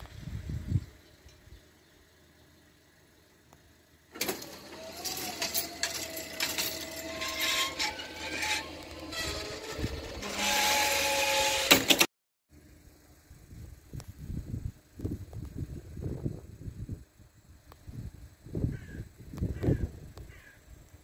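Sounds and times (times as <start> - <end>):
barrier mechanism squealing and scraping: 4.3 - 12.1.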